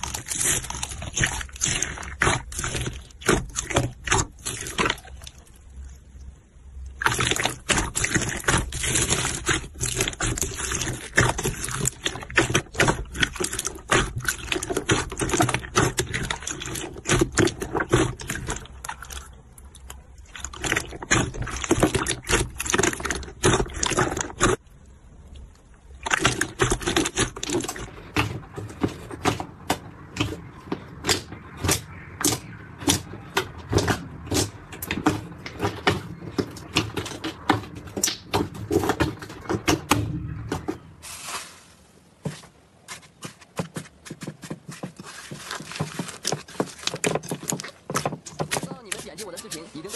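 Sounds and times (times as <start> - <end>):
foam beads crackling and popping: 0.0 - 5.6, 45.0 - 49.9
hands squelching slime: 0.0 - 49.9.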